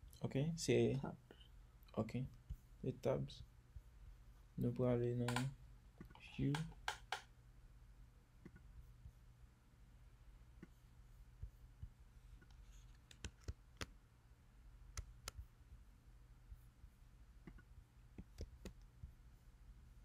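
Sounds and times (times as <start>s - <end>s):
low steady hum: 0.0s - 20.0s
mouse and keyboard clicks: 5.2s - 7.3s, 12.4s - 13.9s, 17.5s - 18.9s.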